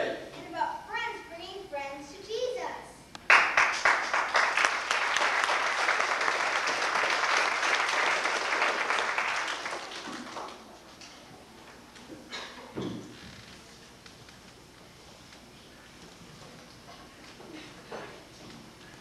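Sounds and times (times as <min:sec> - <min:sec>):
audience applauding: 0:03.3 - 0:10.8.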